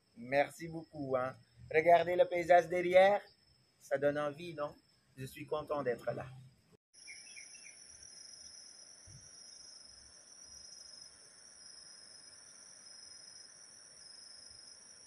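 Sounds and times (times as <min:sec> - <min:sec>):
high-pitched insect chorus: 0:00.0 - 0:15.0
open-air background hiss: 0:00.0 - 0:15.0.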